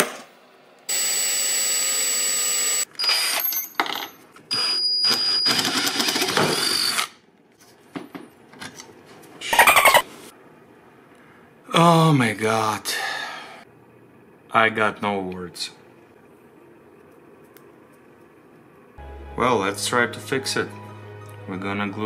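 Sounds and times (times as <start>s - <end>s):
electric drill boring wood: 0.9s - 3.4s.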